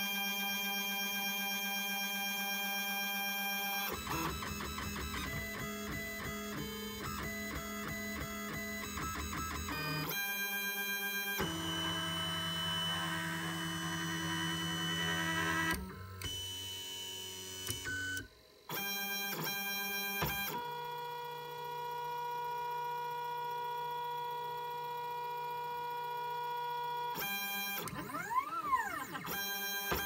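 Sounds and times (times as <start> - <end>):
stepper motors whining: 10.7 - 18.3.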